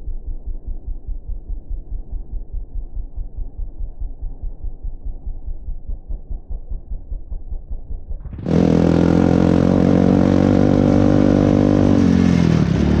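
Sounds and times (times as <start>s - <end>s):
muffled low thumping: 0.0s - 8.4s
atv engine running: 8.2s - 13.0s.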